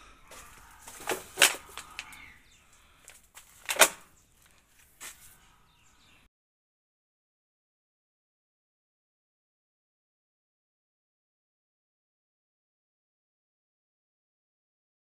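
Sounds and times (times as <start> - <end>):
twigs snapping: 0.3 - 2.3, 3.0 - 5.2
leaves and twigs rustling: 0.3 - 5.4.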